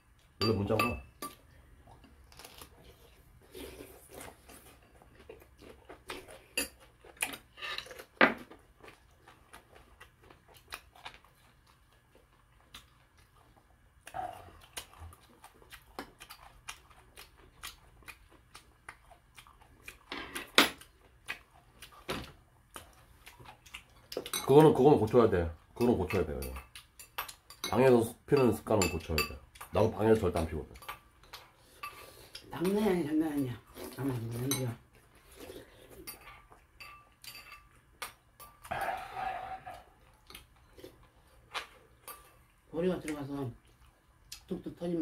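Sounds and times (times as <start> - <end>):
chewing: 1.4 - 24.5, 33.6 - 44.5
utensils clinking against bowls: 25.8 - 29.4, 36.0 - 37.7.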